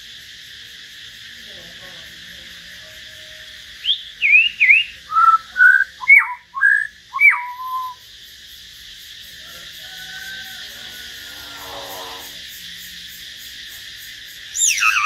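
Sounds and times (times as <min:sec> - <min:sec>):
songbird whistling song: 0:03.8 - 0:08.0, 0:14.5 - 0:15.0.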